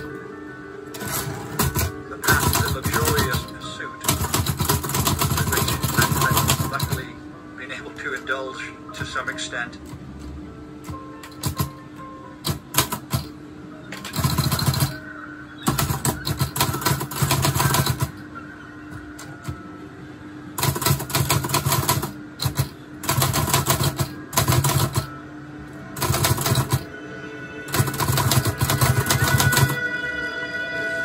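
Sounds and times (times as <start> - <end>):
faint background music: 0.0 - 31.0
typewriter keys clattering: 1.0 - 7.0, 14.0 - 15.0, 15.7 - 18.2, 20.6 - 25.1, 26.0 - 26.8, 27.7 - 29.8.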